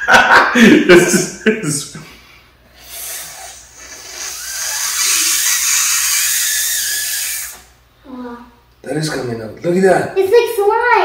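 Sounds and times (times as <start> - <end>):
man blowing hard hissing breath: 2.7 - 7.8.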